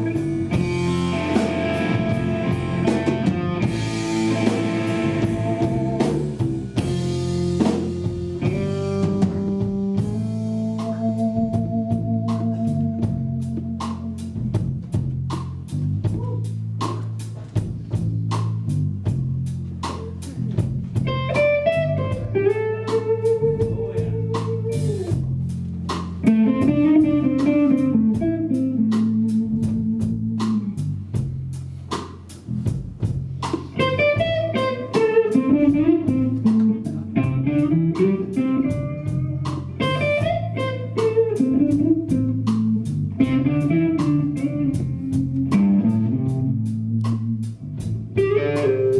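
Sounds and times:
electric guitar solo: 0.0s - 14.2s, 21.0s - 25.2s, 26.2s - 30.8s, 33.7s - 47.1s, 48.0s - 48.9s
bass and drum groove: 0.0s - 48.9s.

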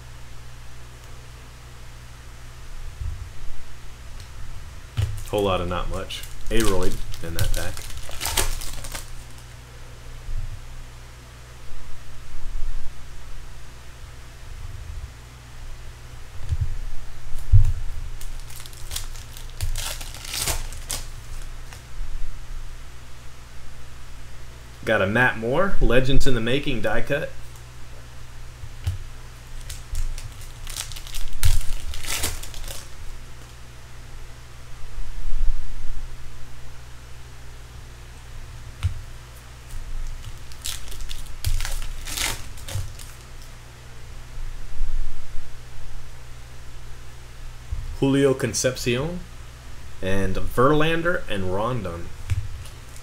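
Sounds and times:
trading cards shuffling: 5.0s - 9.5s, 18.2s - 21.8s, 28.9s - 33.0s, 38.8s - 43.5s
foil wrapper tearing and crinkling: 5.1s - 9.6s, 18.2s - 21.8s, 29.4s - 33.0s, 39.7s - 43.5s.

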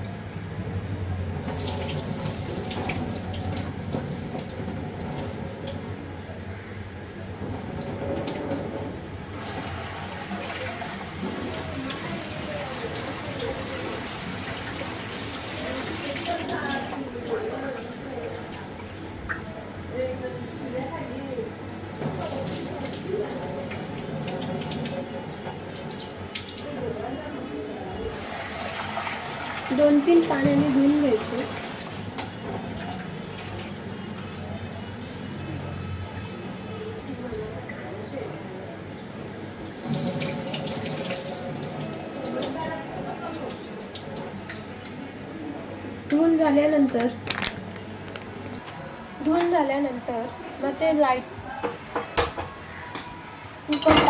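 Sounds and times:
tap water running into pot: 1.4s - 6.0s, 21.9s - 26.8s, 28.2s - 34.3s, 39.8s - 44.6s
water poured into sink: 1.4s - 6.0s, 7.4s - 17.5s, 21.9s - 26.9s, 28.1s - 34.5s, 39.8s - 45.0s.

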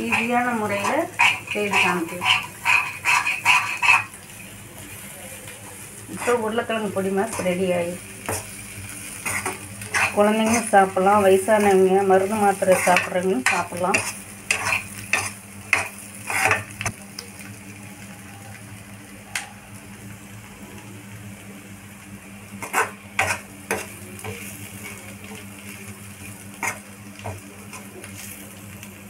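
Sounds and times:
spoon scraping and knocking pan: 0.0s - 4.1s, 8.2s - 8.6s, 9.2s - 10.8s, 12.3s - 16.7s, 22.6s - 25.0s
light sizzling: 0.0s - 29.0s
steady low hum: 0.0s - 29.0s.

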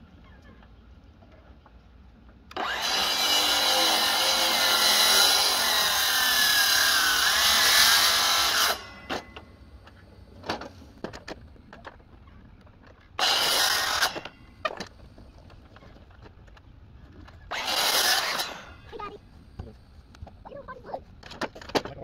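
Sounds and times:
miter saw cutting wood: 2.5s - 9.5s, 13.2s - 14.4s, 17.5s - 19.0s.

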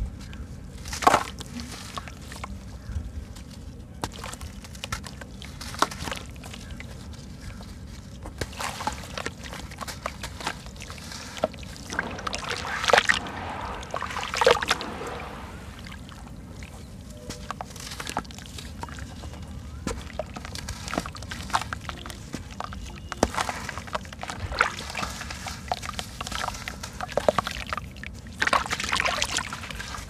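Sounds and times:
grit trickling into water: 0.6s - 30.0s
water sloshing and splashing: 4.0s - 30.0s
crumbling cement chunk crackles: 8.4s - 23.5s.

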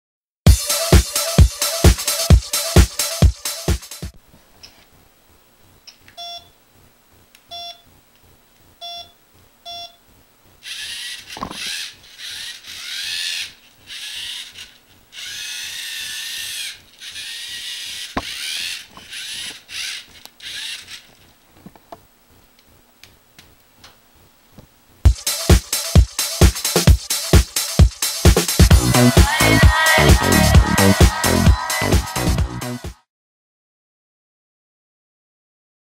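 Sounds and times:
short electronic beeps: 6.2s - 6.6s, 8.8s - 10.0s
servo motors whirring: 10.6s - 21.2s.

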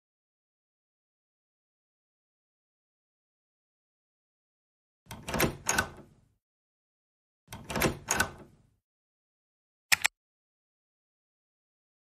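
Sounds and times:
sharp clicks: 9.9s - 10.2s.

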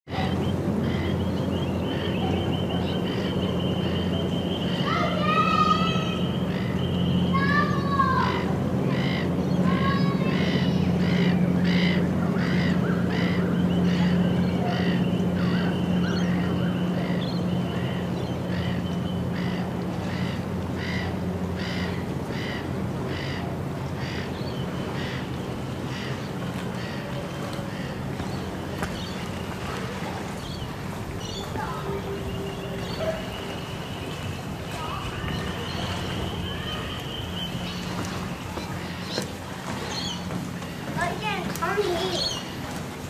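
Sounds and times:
bird calling: 0.1s - 43.0s
steady low hum: 0.1s - 43.0s
footsteps walking: 37.8s - 41.6s.

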